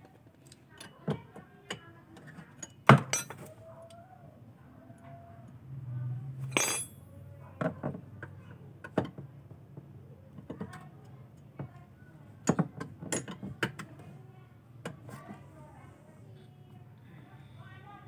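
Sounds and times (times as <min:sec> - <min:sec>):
wrench clinking on metal bolts: 0:02.6 - 0:03.4, 0:06.5 - 0:07.0.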